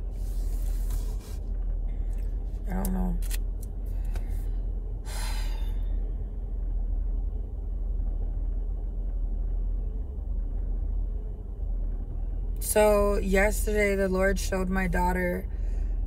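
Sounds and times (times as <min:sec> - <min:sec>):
car engine rumble: 0:00.0 - 0:16.0
road noise inside car: 0:00.0 - 0:16.0
person breathing: 0:03.8 - 0:06.0.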